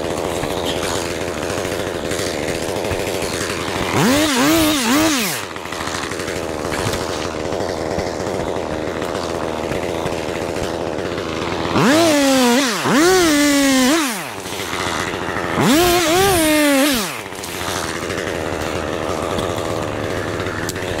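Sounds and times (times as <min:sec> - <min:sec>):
chainsaw revving: 0:00.0 - 0:21.0.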